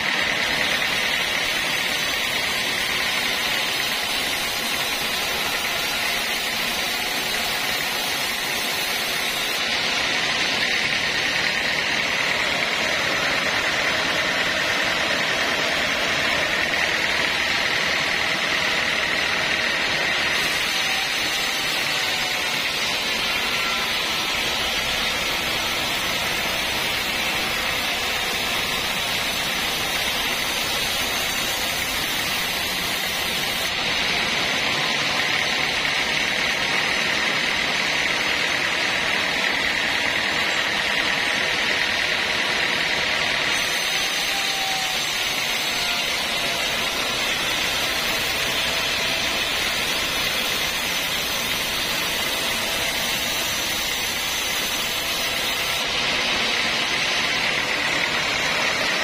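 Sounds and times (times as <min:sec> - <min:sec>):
band saw cutting wood: 0:00.0 - 0:59.0.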